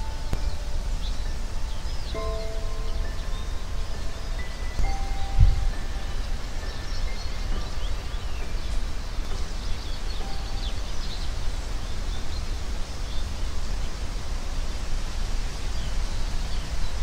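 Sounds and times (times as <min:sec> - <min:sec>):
distant small birds chirping: 0:00.0 - 0:17.0
steady hiss: 0:00.0 - 0:17.0.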